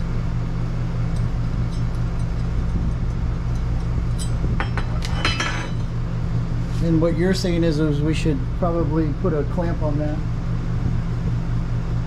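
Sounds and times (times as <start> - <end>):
steady low hum: 0.0 - 12.0
metal bracket clinking: 1.1 - 5.8.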